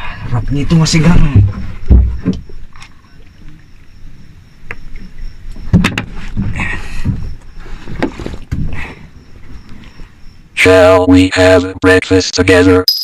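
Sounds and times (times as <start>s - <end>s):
sharp knocks and clatter: 5.6s - 7.3s.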